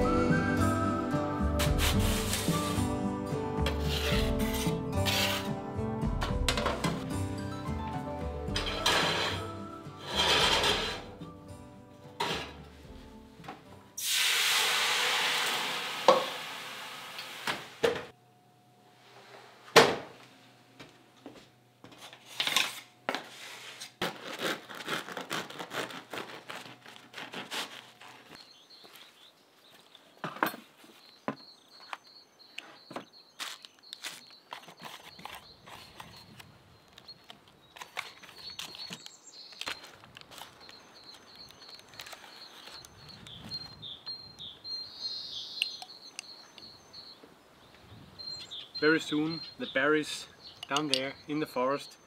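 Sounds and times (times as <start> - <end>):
bread knife sawing crusty loaf: 24.0 - 28.3
birds chirping: 28.3 - 52.0.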